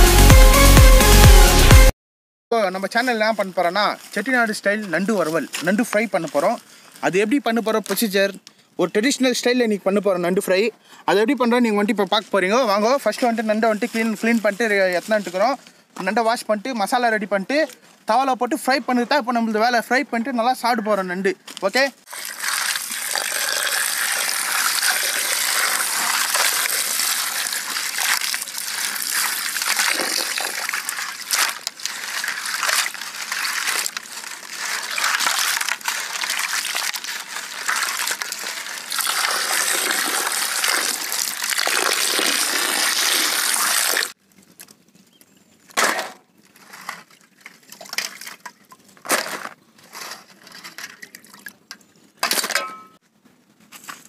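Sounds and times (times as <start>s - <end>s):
short splashes and knocks: 22.1s - 41.9s, 46.8s - 49.5s
water pouring into steel bowl: 22.1s - 44.1s.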